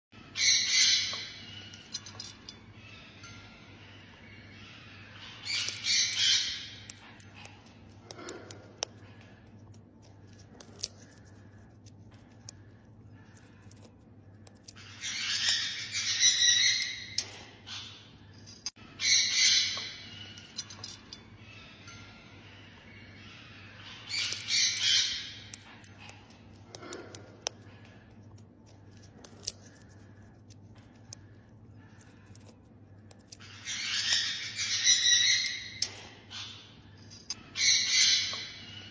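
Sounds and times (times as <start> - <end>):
beak clicking on food: 5.4 - 17.4, 24.1 - 36.2.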